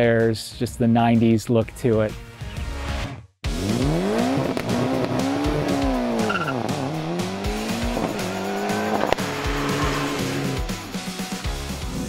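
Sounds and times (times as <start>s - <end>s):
car engine revving: 3.5s - 11.4s.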